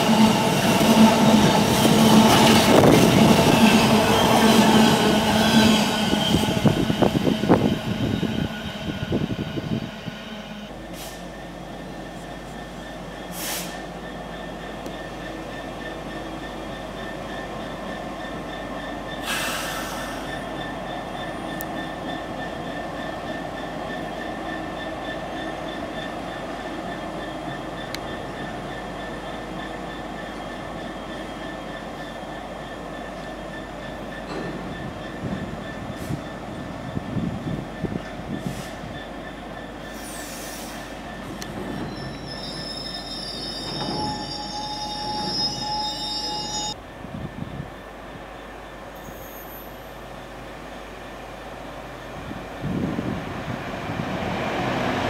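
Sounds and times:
wheel squeal: 0:12.6 - 0:46.8, 0:49.0 - 0:50.0
high-pitched squeal: 0:38.8 - 0:46.8.

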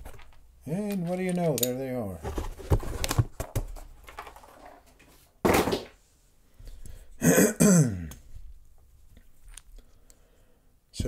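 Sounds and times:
man clearing his throat: 0:07.2 - 0:08.2.

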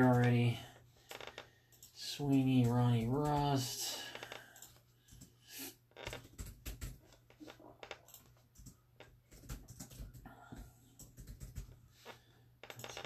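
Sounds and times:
typing on keyboard: 0:01.7 - 0:03.8, 0:06.1 - 0:07.2, 0:08.0 - 0:11.8.

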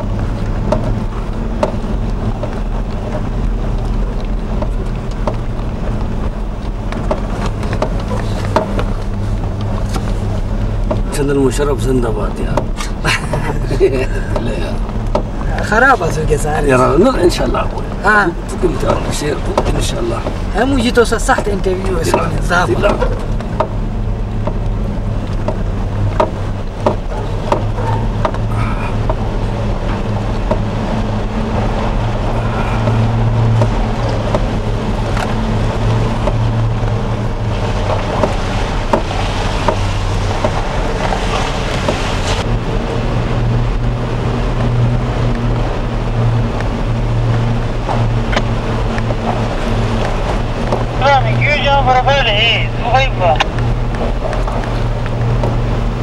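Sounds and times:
knocks and rattles: 0:00.0 - 0:11.2, 0:17.6 - 0:42.5
vehicle engine humming: 0:00.0 - 0:56.0.

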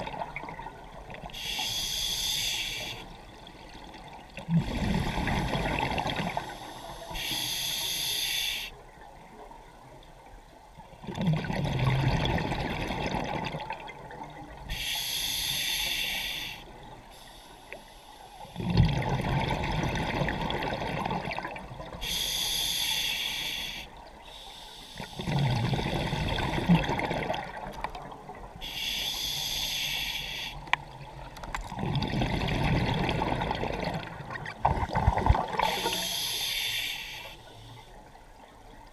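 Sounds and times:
regulator inhale hiss: 0:01.3 - 0:03.2, 0:06.3 - 0:08.8, 0:14.7 - 0:18.6, 0:22.0 - 0:25.3, 0:28.6 - 0:30.7, 0:35.6 - 0:38.0
exhaled bubbles gushing: 0:11.1 - 0:14.2, 0:18.6 - 0:21.8, 0:25.2 - 0:27.8, 0:31.6 - 0:36.0.

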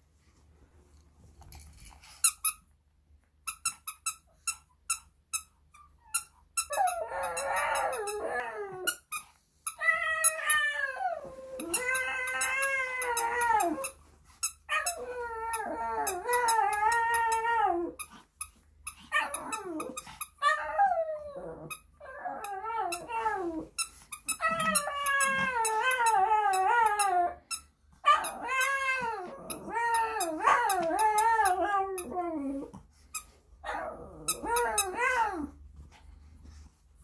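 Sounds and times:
puppy howling: 0:06.7 - 0:08.9, 0:09.8 - 0:13.9, 0:24.4 - 0:27.4, 0:28.0 - 0:32.7.

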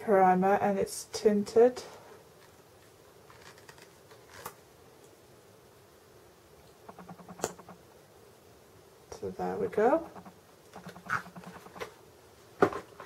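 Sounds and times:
room hiss: 0:00.0 - 0:13.0
light clicks and rustles: 0:02.3 - 0:05.2.

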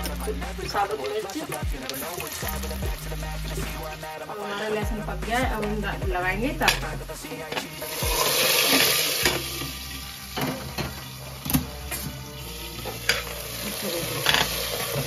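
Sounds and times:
spoon stirring: 0:00.0 - 0:05.8
hot oil sizzling: 0:00.0 - 0:15.0.

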